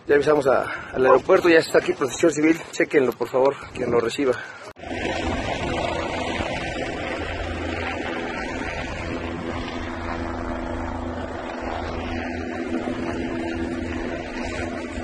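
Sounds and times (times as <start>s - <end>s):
engine drone: 4.7s - 15.0s
low hum tones: 4.8s - 15.0s.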